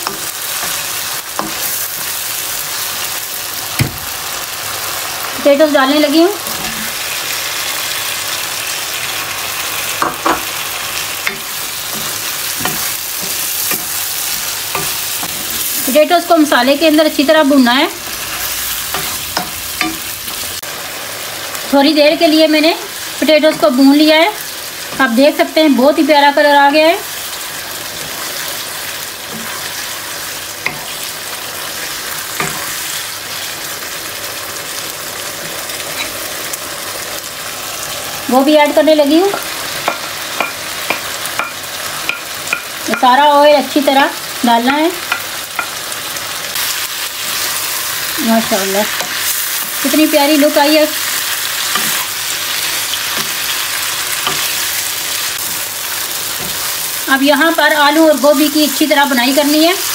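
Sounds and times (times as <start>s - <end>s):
spatula knocking and scraping pan: 0.0s - 1.8s, 10.0s - 10.5s, 11.2s - 15.6s, 39.2s - 43.2s
food sizzling in hot oil: 0.0s - 59.9s.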